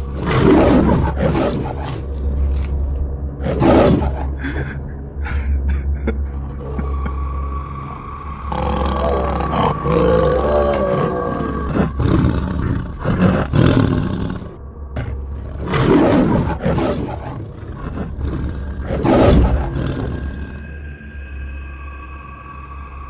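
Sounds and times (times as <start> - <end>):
tiger roaring and growling: 0.0 - 2.8, 3.4 - 4.8, 7.9 - 20.7.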